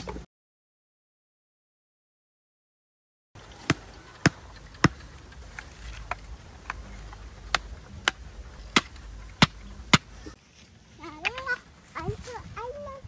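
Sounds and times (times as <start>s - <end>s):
axe knocking wooden stake: 7.5s - 10.1s.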